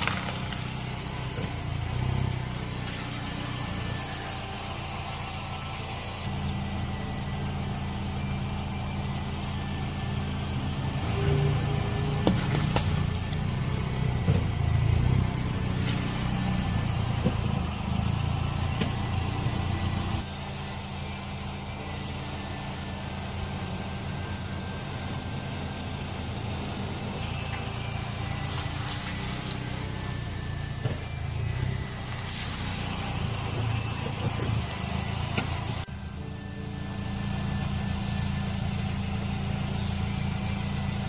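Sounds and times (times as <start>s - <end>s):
tyre crushing fruit: 0.0s - 1.6s, 12.2s - 13.2s
car engine running slowly: 0.0s - 41.0s.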